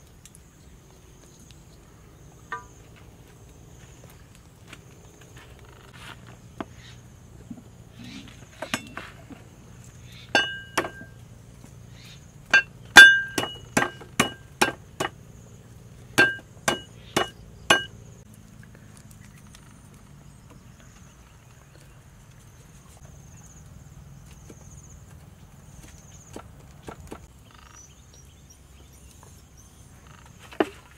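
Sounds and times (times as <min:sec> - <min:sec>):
knife chopping on wooden board: 0:12.6 - 0:15.1, 0:16.2 - 0:17.9.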